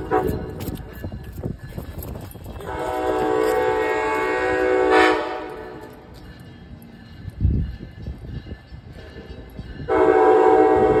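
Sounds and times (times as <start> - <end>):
locomotive air horn: 0.0 - 0.6, 2.6 - 5.8, 9.9 - 11.0.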